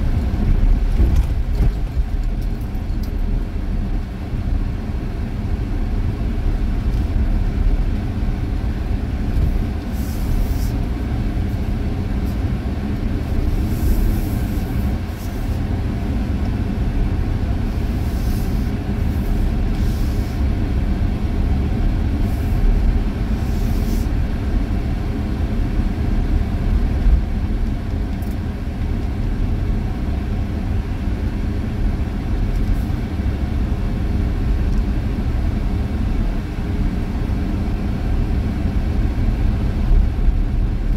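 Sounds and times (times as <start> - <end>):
vehicle road and engine rumble: 0.0 - 40.9.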